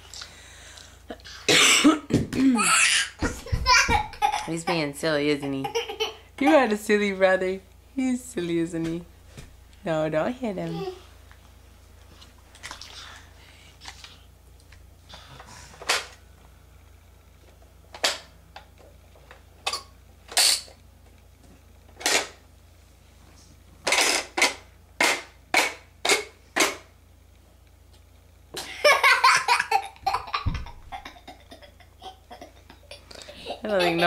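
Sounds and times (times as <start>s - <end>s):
low thump: 30.4s - 30.9s.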